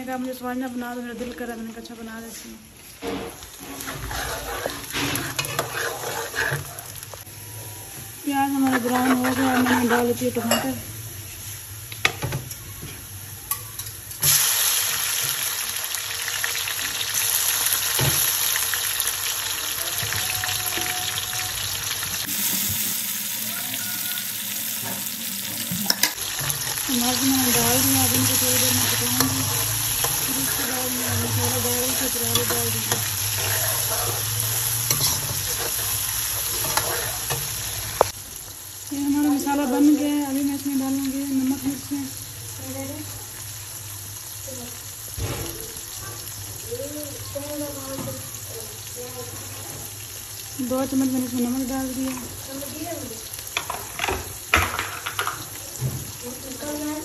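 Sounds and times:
vegetables sizzling in hot oil: 0:00.0 - 0:57.0
metal ladle stirring: 0:03.5 - 0:06.8, 0:27.4 - 0:37.5.

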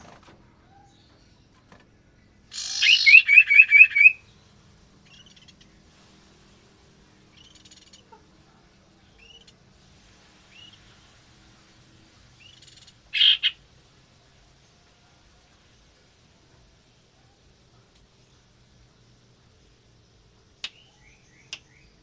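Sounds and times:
bird chirping: 0:00.6 - 0:05.8, 0:07.3 - 0:08.2, 0:09.0 - 0:09.6, 0:12.3 - 0:13.6, 0:18.1 - 0:22.0
harsh rasping bird call: 0:02.5 - 0:04.2, 0:12.5 - 0:13.6.

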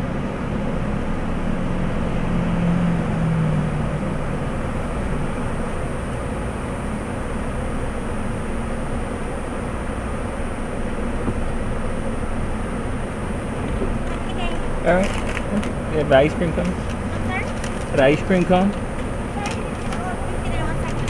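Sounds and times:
car engine idling: 0:03.0 - 0:21.0.

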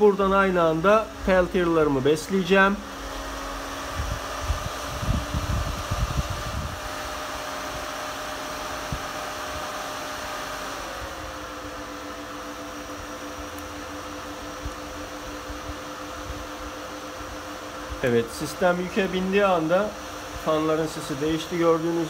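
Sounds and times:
cooling fans humming: 0:00.0 - 0:22.0.

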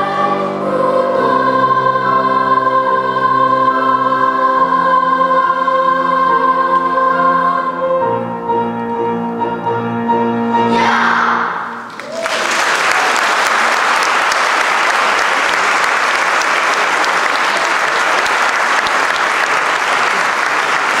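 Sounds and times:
children's choir singing: 0:00.0 - 0:08.4, 0:10.6 - 0:11.9
audience applauding: 0:11.8 - 0:21.0.

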